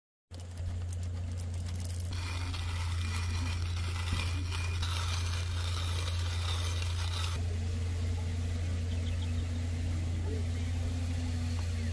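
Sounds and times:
coffee beans ticking into grinder: 0:00.3 - 0:07.4
steady low hum: 0:00.3 - 0:11.9
hand grinder crunching beans: 0:00.4 - 0:07.4.

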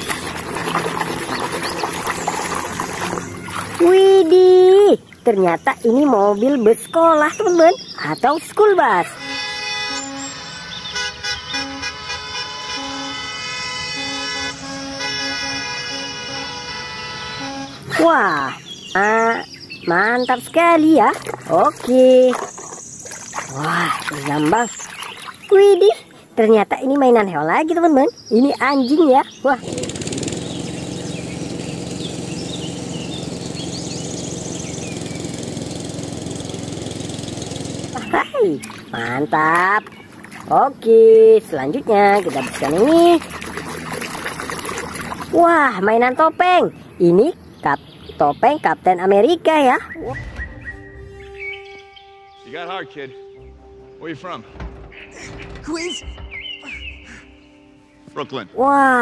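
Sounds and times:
small engine droning: 0:00.0 - 0:25.4, 0:28.8 - 0:48.1
birds chirping: 0:00.0 - 0:59.0
bus horns honking: 0:08.7 - 0:18.8.

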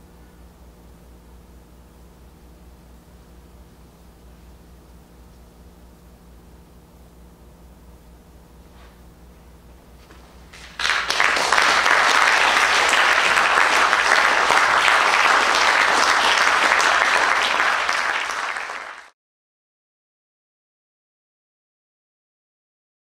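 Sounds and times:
audience applause: 0:10.5 - 0:19.2.

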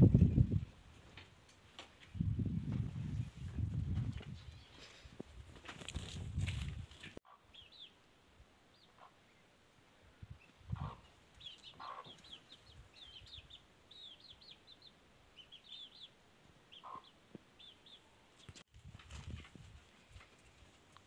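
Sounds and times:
low scuffling: 0:01.9 - 0:07.2
chicks peeping: 0:10.7 - 0:16.1, 0:16.7 - 0:18.6.

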